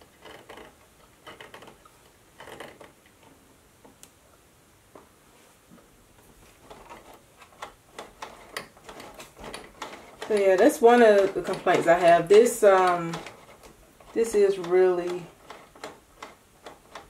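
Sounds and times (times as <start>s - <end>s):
sewing machine clicks and taps: 6.7s - 17.0s.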